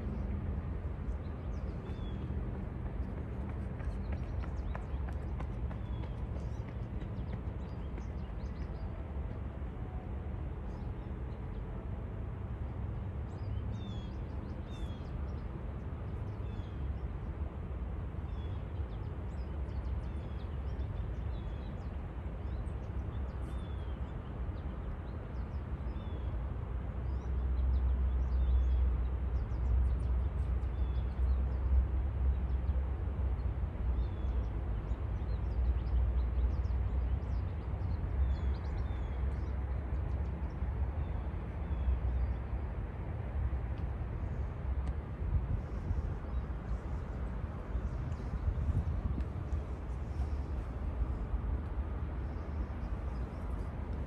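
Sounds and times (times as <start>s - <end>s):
steady low rumble: 37.2s - 54.0s.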